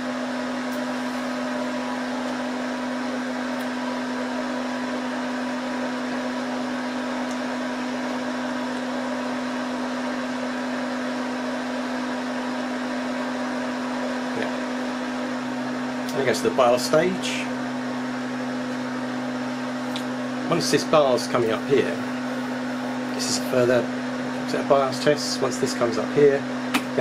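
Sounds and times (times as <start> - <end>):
server cooling fans running: 0.0 - 27.0.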